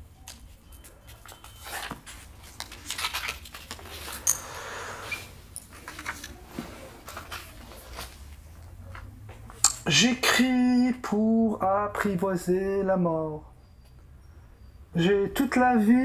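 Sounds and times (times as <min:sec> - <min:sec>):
paper rustling: 0:00.2 - 0:04.3, 0:05.1 - 0:09.0.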